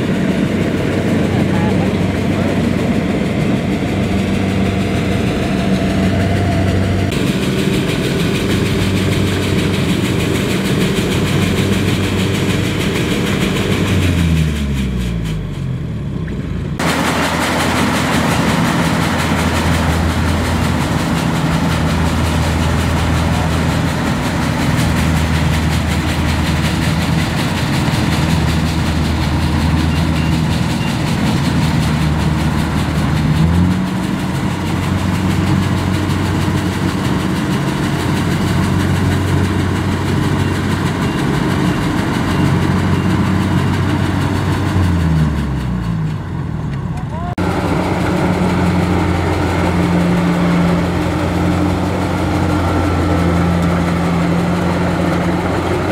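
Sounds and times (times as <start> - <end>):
machinery rushing: 0.0 - 15.4, 16.7 - 46.5, 47.3 - 55.9
diesel engine running: 0.0 - 55.9.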